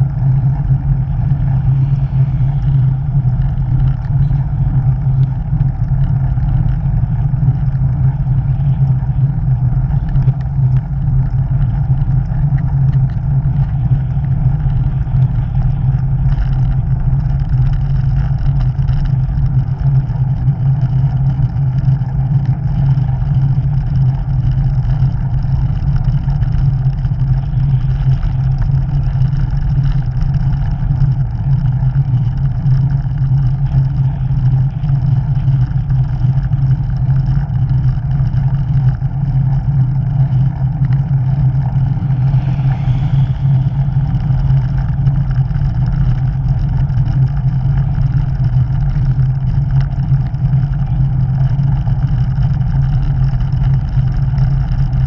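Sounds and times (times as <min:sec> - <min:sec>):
wind buffeting: 0:00.0 - 0:20.7, 0:25.2 - 0:52.1
road noise: 0:00.0 - 0:55.0
car overtaking: 0:39.9 - 0:48.9.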